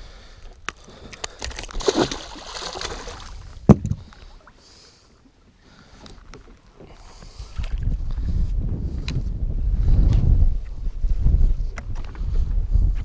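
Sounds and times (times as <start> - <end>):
fish splashing in water: 1.4 - 3.5.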